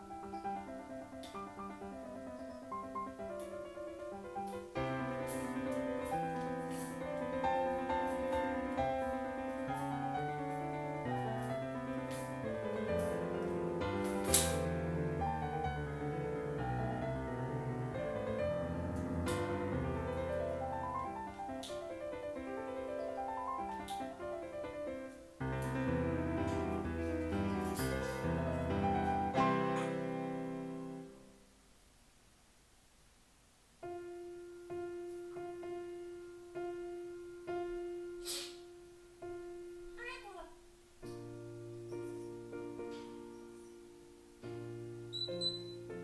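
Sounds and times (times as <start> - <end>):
piano music: 0.0 - 31.4, 33.8 - 46.0.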